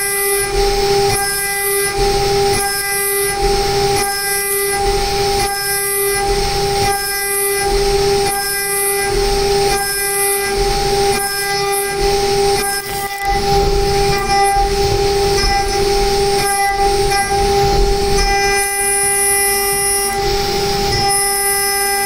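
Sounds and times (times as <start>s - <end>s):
end mill cutting metal: 0.0s - 22.0s
high-pitched spindle tone: 8.3s - 22.0s.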